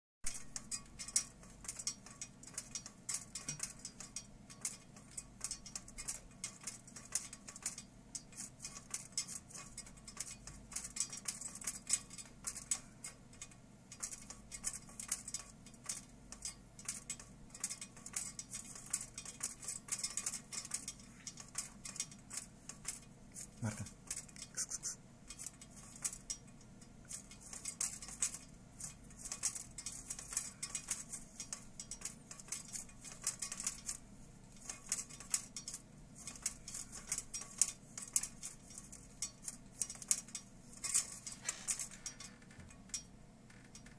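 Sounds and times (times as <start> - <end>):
venetian blind slats clicking: 25.3 - 43.9.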